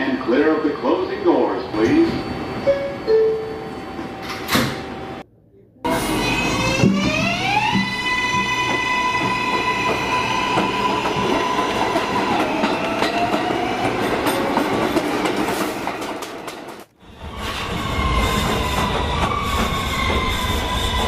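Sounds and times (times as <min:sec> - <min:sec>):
train propulsion whine: 0:00.0 - 0:05.2, 0:05.9 - 0:21.0.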